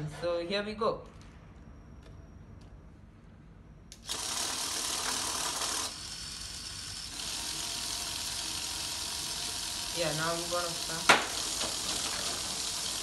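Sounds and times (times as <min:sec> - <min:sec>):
small electric motors whirring: 0:03.9 - 0:13.0.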